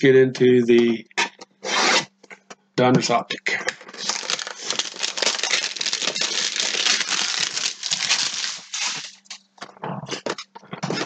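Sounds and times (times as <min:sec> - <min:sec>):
packaging tearing and crinkling: 0:03.7 - 0:09.5.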